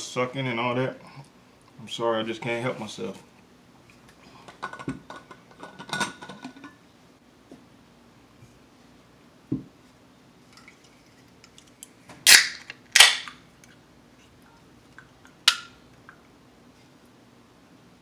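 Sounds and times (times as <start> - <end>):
can pull tab cracking open: 12.3 - 13.4.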